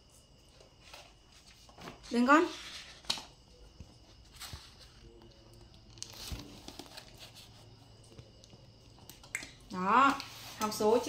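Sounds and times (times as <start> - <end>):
paper rustle: 0.6 - 8.2.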